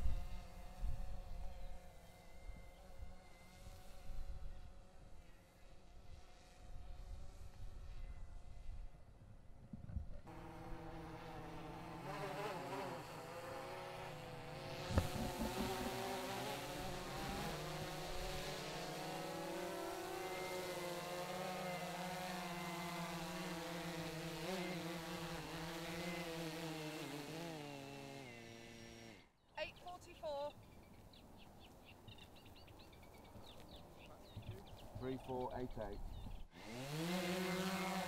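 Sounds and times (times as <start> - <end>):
drone propellers buzzing: 10.3 - 29.3, 35.7 - 38.0.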